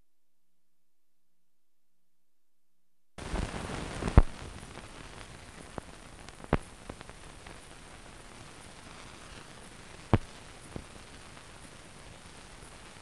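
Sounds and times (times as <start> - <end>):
loud pops: 3.2 - 7.6, 8.8 - 11.0
film hiss and crackle: 3.2 - 13.0.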